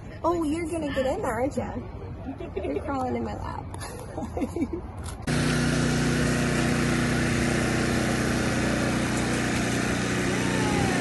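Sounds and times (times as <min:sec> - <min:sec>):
small engine droning: 0:05.3 - 0:11.0.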